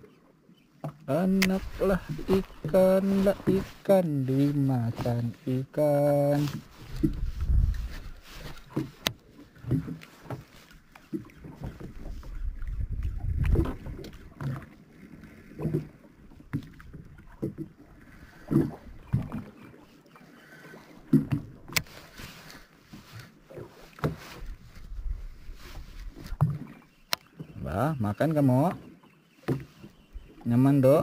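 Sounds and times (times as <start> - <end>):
water slapping boat hull: 0.0 - 31.0
wind rumble on microphone: 6.8 - 8.5, 11.9 - 14.4, 24.5 - 26.4.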